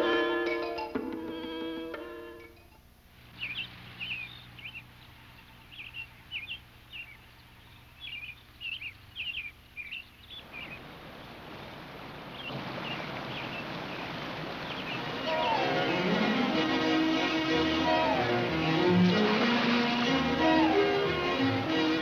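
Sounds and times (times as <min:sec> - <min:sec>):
small birds chirping: 0:03.2 - 0:16.5, 0:17.7 - 0:22.0
river rushing over rocks: 0:10.4 - 0:22.0.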